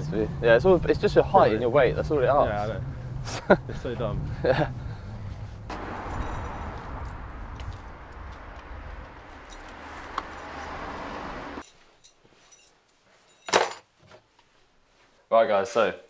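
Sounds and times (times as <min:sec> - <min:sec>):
outdoor background noise: 0:00.0 - 0:16.0
keys jangling: 0:05.7 - 0:13.8.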